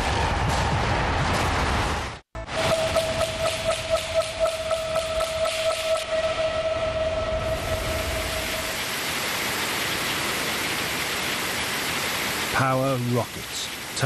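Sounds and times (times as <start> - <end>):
pulsing alarm tone: 2.4 - 8.9
hissing roar of steam: 5.4 - 14.0.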